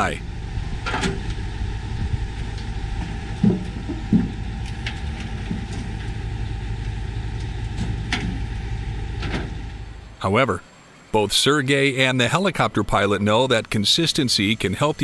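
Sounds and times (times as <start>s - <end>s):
low mechanical rumble: 0.0s - 15.0s.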